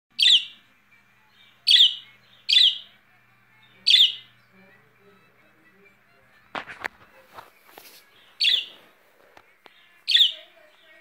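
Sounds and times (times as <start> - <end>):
budgerigar chirping calls: 0.2 - 0.6, 1.5 - 3.0, 3.8 - 4.3, 8.3 - 8.8, 9.8 - 10.5.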